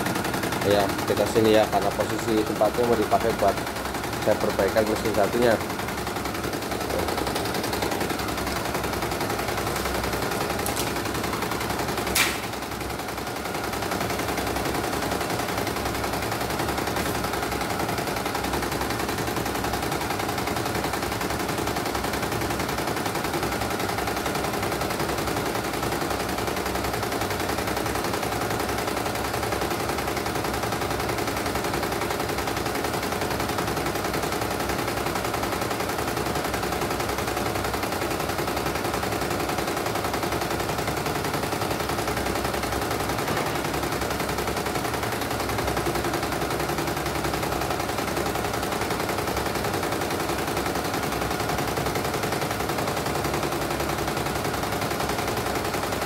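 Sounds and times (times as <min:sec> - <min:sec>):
embroidery machine stitching: 0:00.0 - 0:56.0
sharp click: 0:12.1 - 0:12.6.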